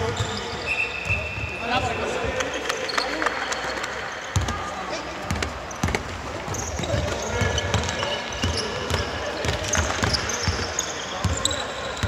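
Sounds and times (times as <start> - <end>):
basketball bouncing on hardwood: 5.3 - 10.6.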